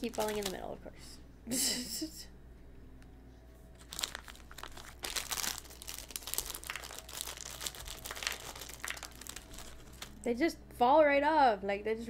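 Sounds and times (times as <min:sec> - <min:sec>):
foil wrapper crinkling: 0:00.0 - 0:00.7, 0:03.8 - 0:10.2.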